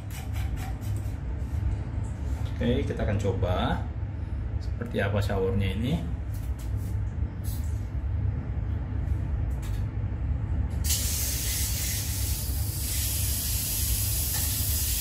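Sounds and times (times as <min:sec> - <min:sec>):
low steady rumble: 0:00.6 - 0:14.2
shower spray hissing: 0:10.8 - 0:15.0.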